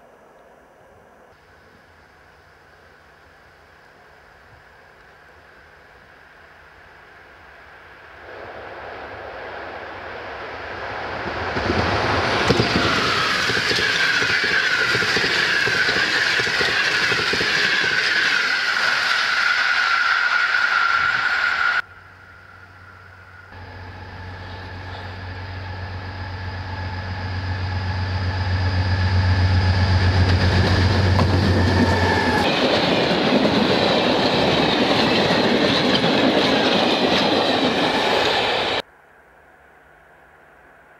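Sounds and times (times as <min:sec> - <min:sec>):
diesel locomotive engine drone: 0:00.0 - 0:40.9
passenger train passing at speed: 0:01.5 - 0:38.9
freight wagons clacking on rail joints: 0:11.6 - 0:18.8
high wheel squeal: 0:12.2 - 0:38.8.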